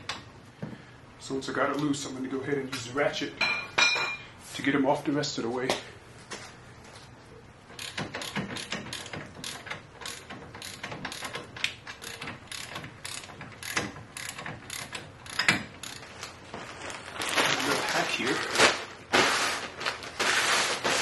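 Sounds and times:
socket ratchet clicking: 7.8s - 16.0s.

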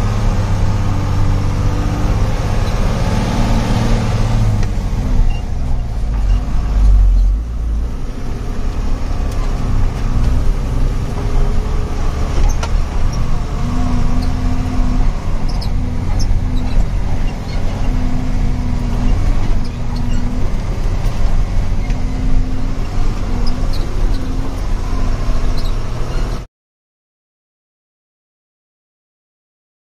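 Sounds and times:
truck engine running: 0.0s - 26.4s
cab rattles and squeaks: 5.0s - 7.5s, 9.0s - 26.5s.

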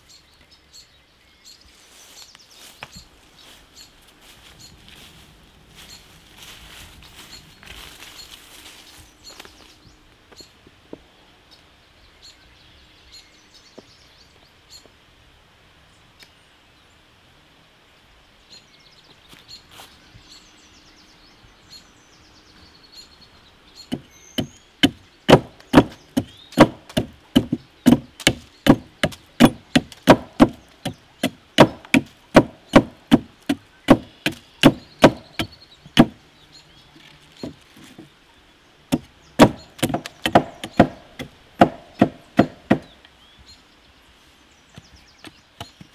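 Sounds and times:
knife chopping wood: 23.9s - 36.2s, 38.9s - 42.9s.

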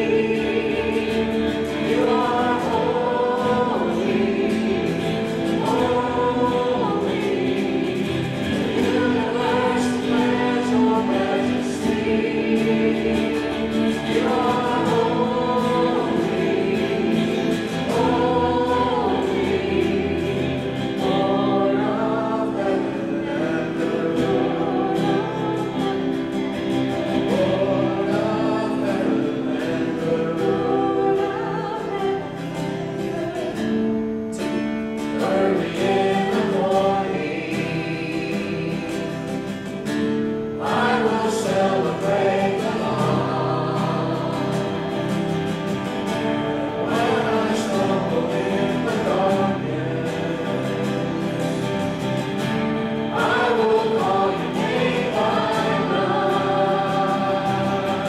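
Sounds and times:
acoustic guitar: 0.0s - 58.0s
worship band singing: 0.0s - 58.0s.

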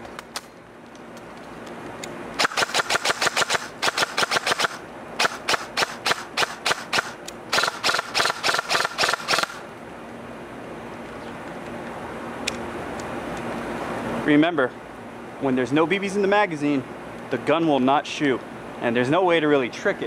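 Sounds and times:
airsoft rifle firing rapidly: 2.4s - 9.6s.

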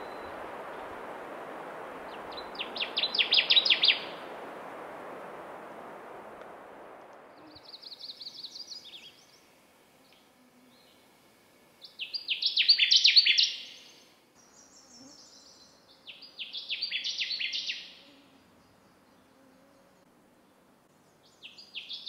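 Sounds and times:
warbler singing: 2.1s - 4.2s, 7.4s - 9.5s, 11.8s - 17.9s.

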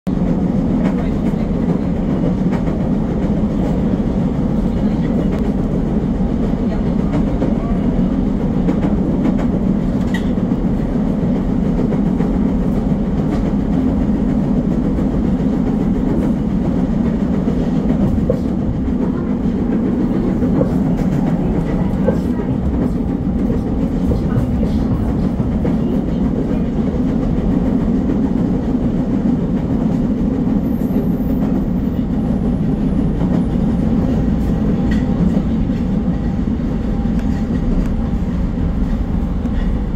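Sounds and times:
faint train clicks: 0.1s - 39.9s
train wheels rumbling: 0.1s - 39.9s.

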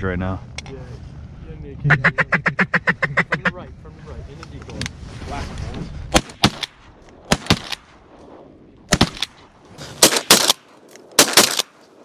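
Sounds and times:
shotgun blasts: 6.1s - 8.0s, 8.9s - 9.4s, 10.0s - 11.8s.

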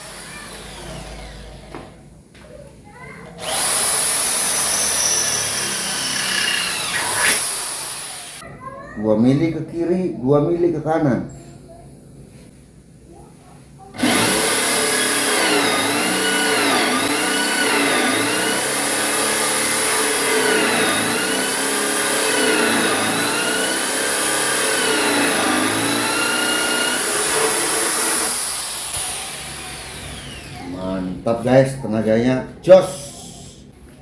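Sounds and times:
drill boring into wood: 0.0s - 1.7s, 3.4s - 8.4s, 14.0s - 30.8s.

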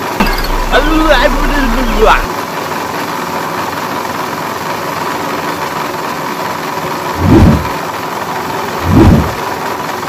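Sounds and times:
brief low rumbles: 7.2s - 7.8s, 8.8s - 9.4s.

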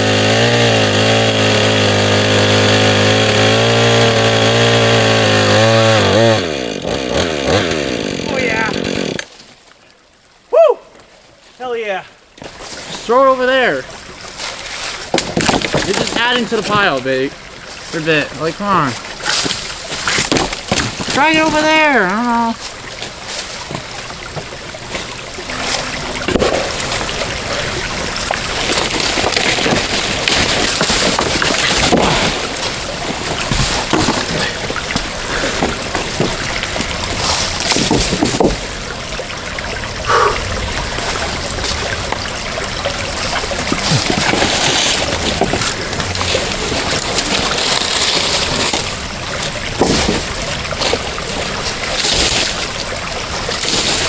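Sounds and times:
running water: 0.0s - 54.0s
water splashing: 11.8s - 54.0s.

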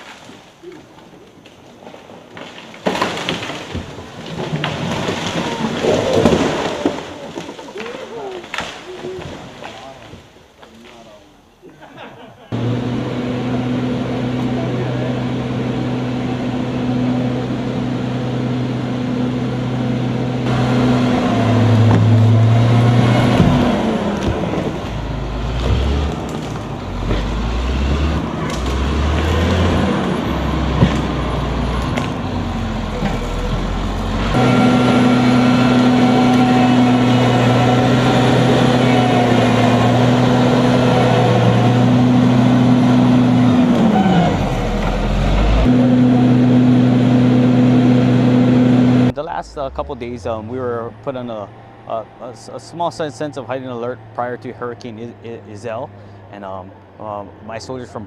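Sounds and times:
bulldozer diesel engine: 12.5s - 58.0s.

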